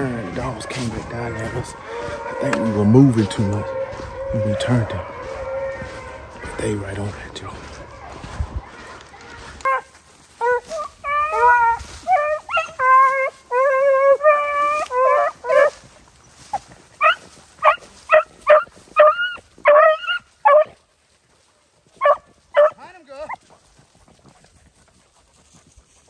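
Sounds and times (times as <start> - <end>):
beagles baying: 0.0 - 23.6.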